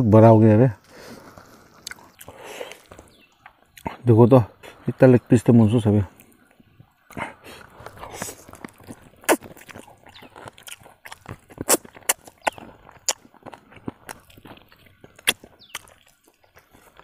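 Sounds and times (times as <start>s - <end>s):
crunching bones: 1.3s - 4.1s, 6.2s - 17.0s
wet chewing and smacking: 1.3s - 4.1s, 6.1s - 17.0s.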